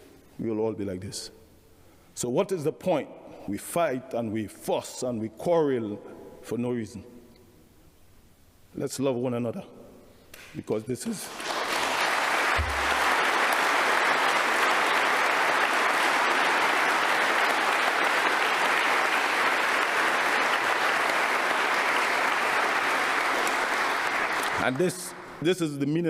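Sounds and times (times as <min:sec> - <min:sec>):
large crowd applauding: 0:11.2 - 0:25.4.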